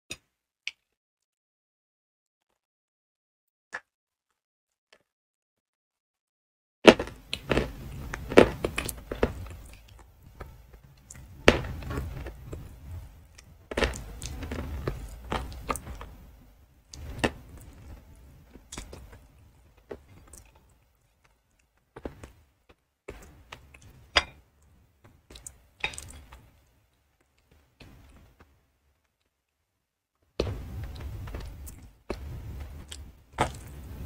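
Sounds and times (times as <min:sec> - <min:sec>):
crunchy chewing of chalk: 0:06.9 - 0:16.1, 0:30.8 - 0:34.0.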